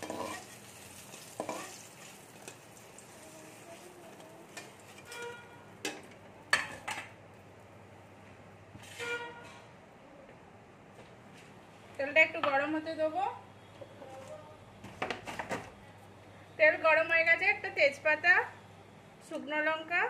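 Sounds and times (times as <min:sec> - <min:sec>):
metal spatula scraping a pan: 0:00.0 - 0:02.5, 0:04.5 - 0:05.6
hot oil sizzling: 0:00.0 - 0:06.0.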